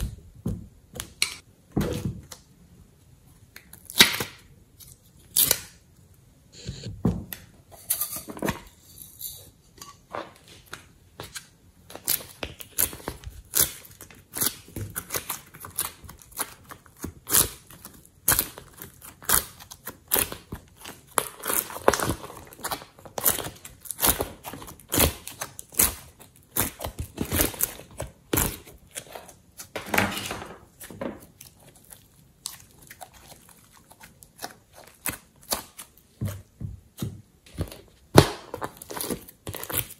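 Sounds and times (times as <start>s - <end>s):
hands squishing slime: 11.9s - 29.8s, 30.7s - 39.9s.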